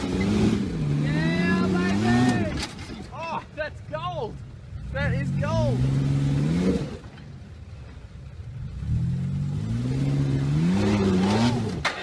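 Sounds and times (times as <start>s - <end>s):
engine revving hard: 0.0s - 2.5s, 4.8s - 7.0s, 8.7s - 11.8s.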